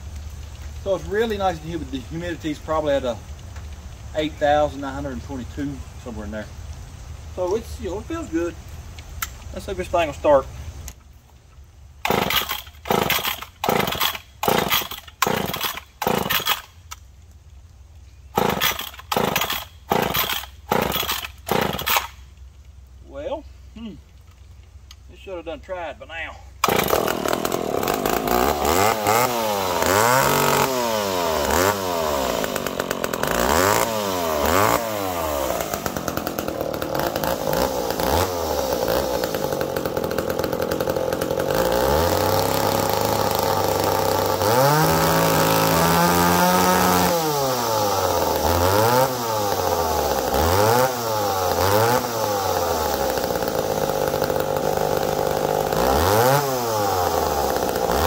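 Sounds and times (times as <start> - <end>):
chainsaw revving and idling: 12.0 - 16.8, 18.3 - 22.2, 26.6 - 58.0.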